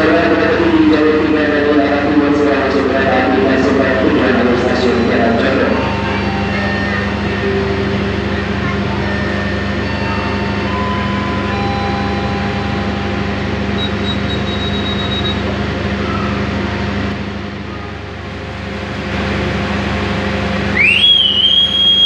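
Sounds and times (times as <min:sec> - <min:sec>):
diesel train engines idling: 0:00.0 - 0:22.0.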